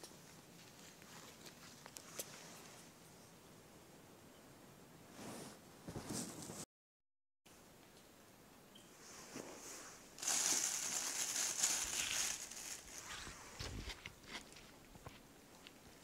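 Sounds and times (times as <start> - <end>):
plastic bag rustling: 9.2 - 14.4.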